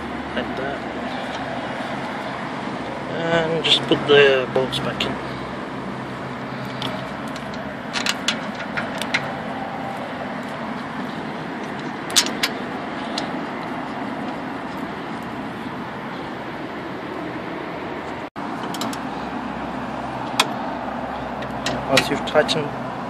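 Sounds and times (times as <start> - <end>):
steady background noise: 0.0 - 23.0.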